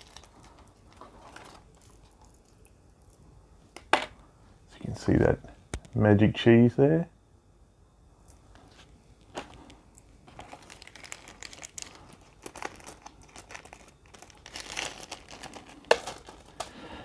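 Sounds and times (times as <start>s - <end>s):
plastic wrapping crinkling: 0.0s - 2.6s, 9.3s - 16.8s.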